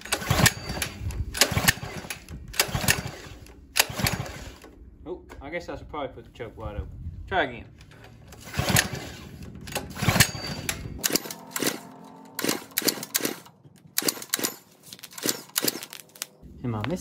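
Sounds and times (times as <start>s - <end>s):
pull-starter cord rasping: 0.0s - 4.8s, 7.8s - 16.3s
engine turning over clattering: 0.0s - 4.9s, 7.8s - 17.0s.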